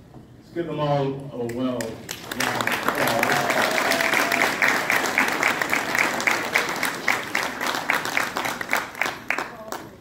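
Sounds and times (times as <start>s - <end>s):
audience applauding: 1.8s - 10.0s
loud nearby hand claps: 1.8s - 10.0s.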